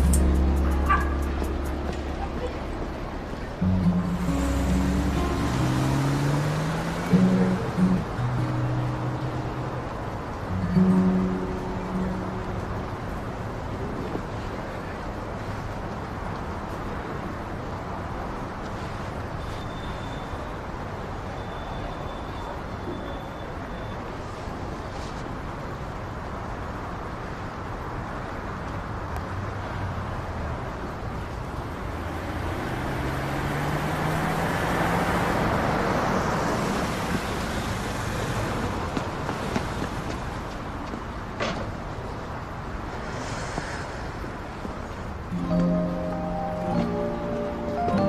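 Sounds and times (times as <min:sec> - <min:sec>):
vehicle passing close: 0:00.0 - 0:09.8, 0:31.8 - 0:40.4
cars on wet pavement: 0:00.0 - 0:48.0.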